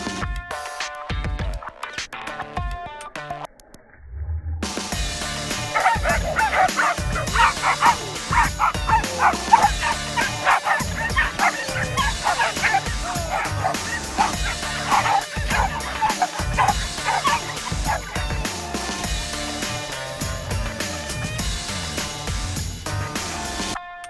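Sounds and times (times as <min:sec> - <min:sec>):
background music with beat: 0:00.0 - 0:03.4, 0:04.7 - 0:24.0
small dogs barking and yipping: 0:05.4 - 0:19.1.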